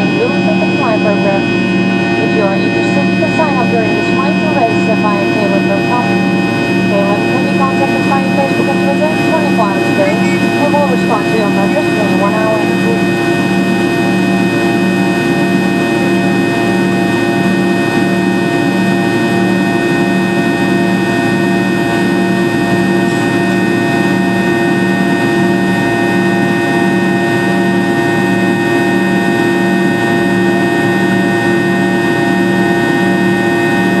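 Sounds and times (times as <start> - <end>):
jet engine drone and whine: 0.0 - 34.0.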